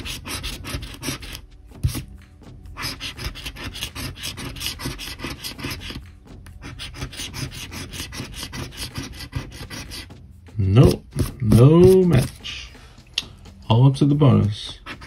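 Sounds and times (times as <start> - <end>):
coin scraping scratch card: 0.0 - 2.1, 2.8 - 6.0, 6.6 - 10.1.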